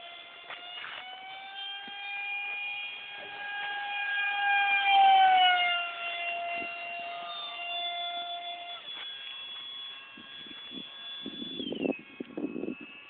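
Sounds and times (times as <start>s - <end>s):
model jet whining: 0.0s - 13.0s.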